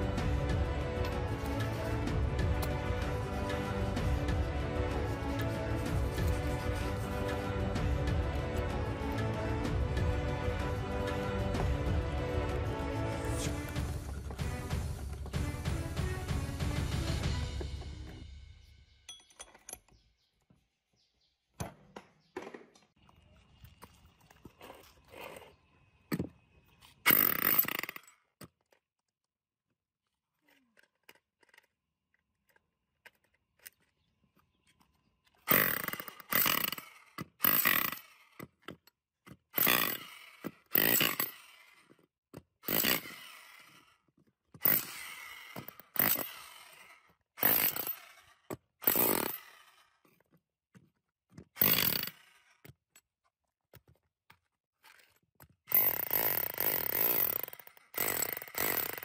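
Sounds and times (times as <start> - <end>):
hammer drill chiselling brick: 27.1 - 28.7, 35.4 - 53.1, 53.7 - 59.0.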